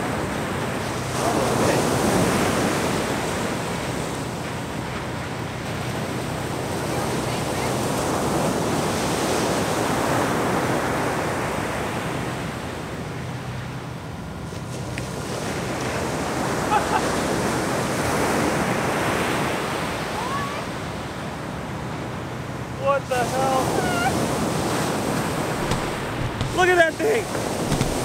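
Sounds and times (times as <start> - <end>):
ocean surf breaking on beach: 0.0 - 13.5, 14.4 - 28.0.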